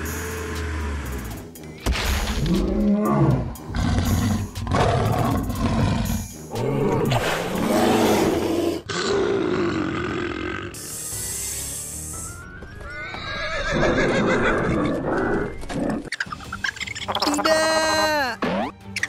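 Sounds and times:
dinosaur roars: 2.4s - 10.8s.

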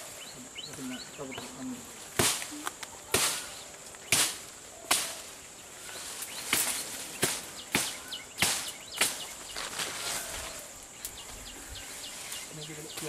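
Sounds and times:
high insect drone: 0.0s - 13.0s
sharp cracks: 2.1s - 5.4s, 6.4s - 9.9s.

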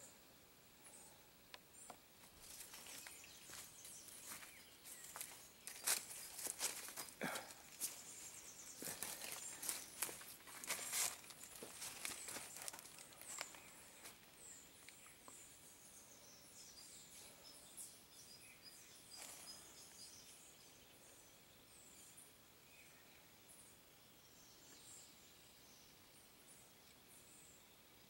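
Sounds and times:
birds chirping: 0.8s - 27.9s
dry leaves crackling: 2.4s - 14.0s.

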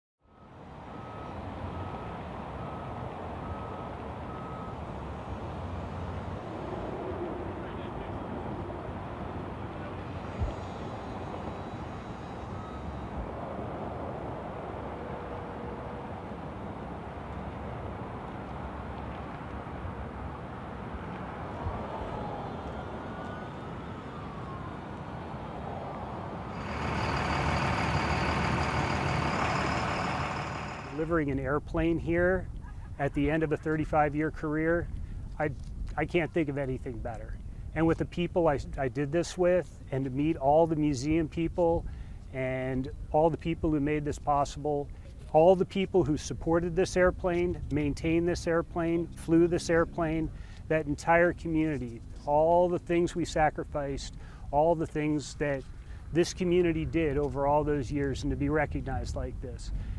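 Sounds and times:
back-up alarm beeping: 0.3s - 5.4s, 10.6s - 13.2s
vehicle engine rumbling: 0.3s - 59.9s
vehicle engine running: 26.5s - 31.1s.

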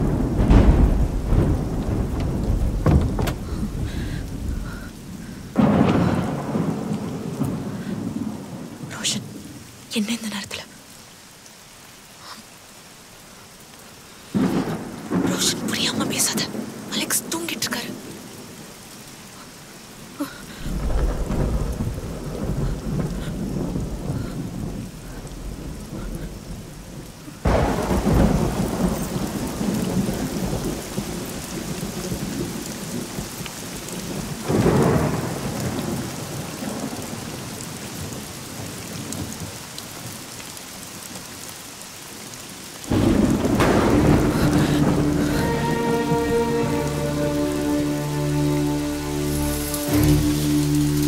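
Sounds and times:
rolling thunder: 0.0s - 9.8s, 14.3s - 18.8s, 20.5s - 40.2s, 42.8s - 48.9s
steady rain: 0.0s - 51.0s.

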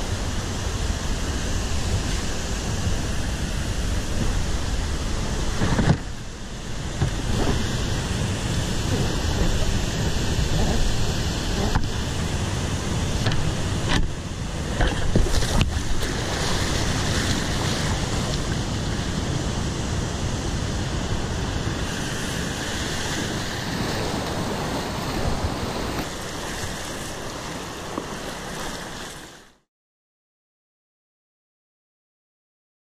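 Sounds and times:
whitewater rushing: 0.0s - 29.6s
kayak splashes and knocks: 6.9s - 8.0s, 13.2s - 18.6s.

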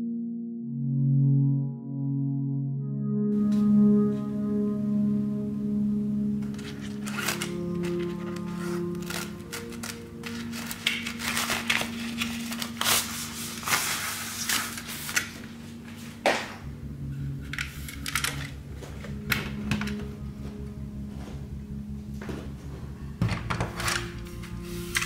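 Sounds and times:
soft background music: 0.0s - 25.0s
fabric bag rustling: 6.6s - 16.2s.

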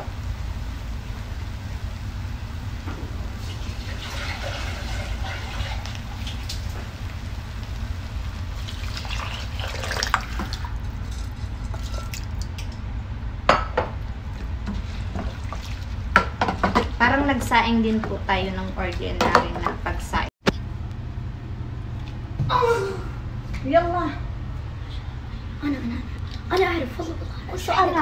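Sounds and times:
steady low hum: 0.0s - 28.0s
water poured into metal pot: 3.4s - 6.4s, 8.6s - 12.7s
wooden spoon stirring: 14.2s - 17.0s.

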